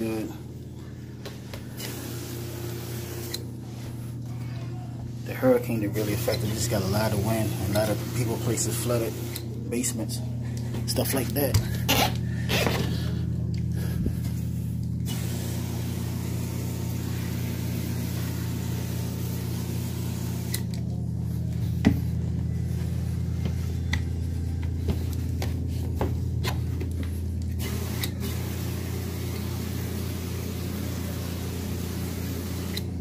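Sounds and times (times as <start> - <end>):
carpet cleaning machine motor humming: 0.0 - 33.0.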